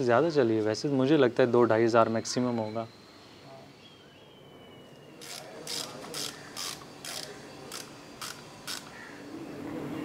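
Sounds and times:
ratchet wrench clicking: 5.2s - 9.0s.

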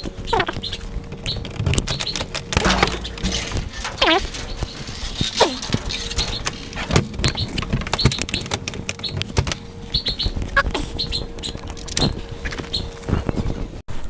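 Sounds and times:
handling clicks and rustling: 0.7s - 9.8s
short falling squeak: 2.6s - 6.4s.

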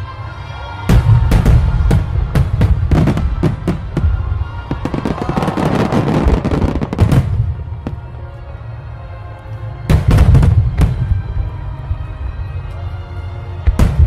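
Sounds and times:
background music: 0.0s - 14.0s
fireworks bangs: 0.9s - 8.1s
fireworks crackling: 1.0s - 8.2s.

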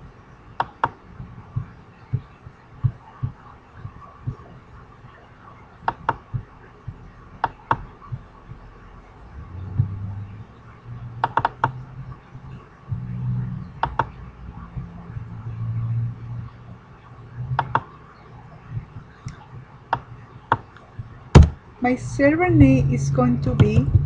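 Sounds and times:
low hum: 0.0s - 24.0s
computer mouse clicking: 0.6s - 1.0s, 5.8s - 6.3s, 7.4s - 7.9s, 11.2s - 11.8s, 13.8s - 14.2s, 17.6s - 17.9s.

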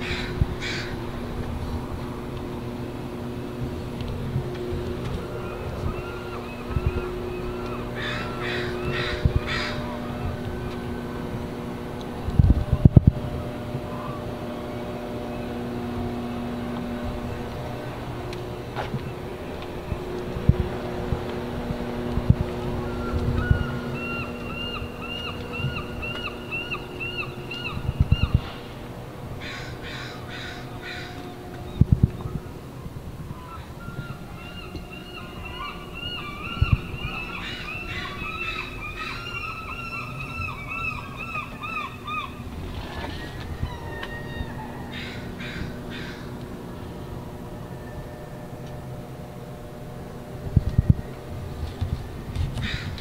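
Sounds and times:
crow cawing: 0.0s - 1.0s, 5.4s - 10.0s, 29.4s - 31.4s, 33.5s - 42.4s, 43.8s - 46.4s, 52.6s - 53.0s
harsh caws: 0.0s - 1.0s, 7.5s - 9.9s, 29.4s - 31.3s, 43.0s - 46.4s, 52.6s - 53.0s
steady low hum: 0.0s - 53.0s.

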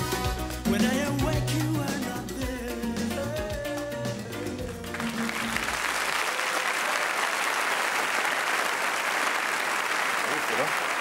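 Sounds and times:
salsa music: 0.0s - 6.4s
audience applauding: 4.6s - 11.0s.

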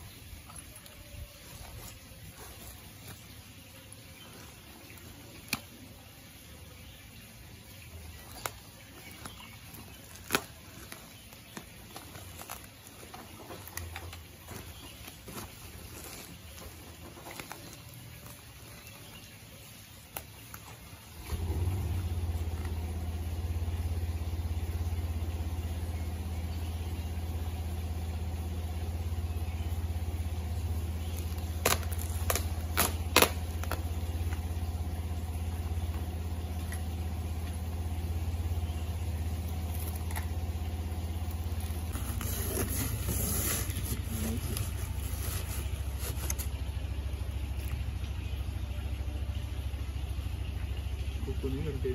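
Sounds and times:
motor humming: 21.0s - 50.9s.

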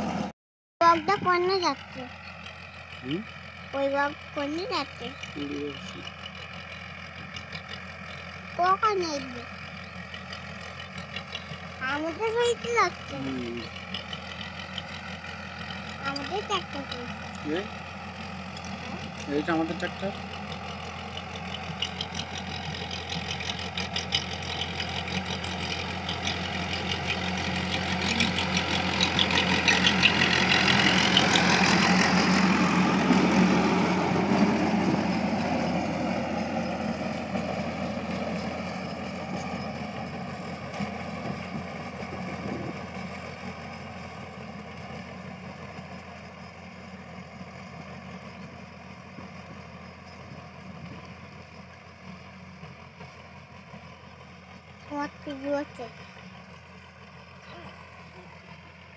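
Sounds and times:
tractor diesel engine under load: 0.0s - 58.9s
rotary tiller rattling clatter: 18.4s - 32.5s.

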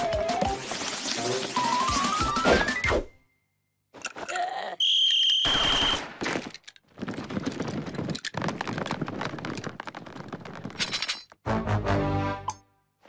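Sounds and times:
rapid tramping footfalls: 6.3s - 10.8s.

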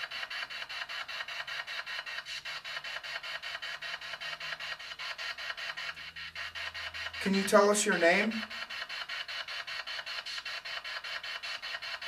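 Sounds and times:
choppy radio static pulses: 4.6s - 8.8s.

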